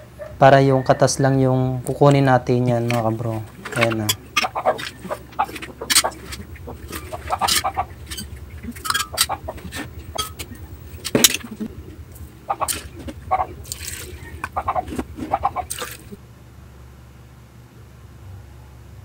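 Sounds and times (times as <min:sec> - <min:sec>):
steady low hum: 0:00.0 - 0:18.8
bowls knocking against glass jar: 0:02.7 - 0:11.7.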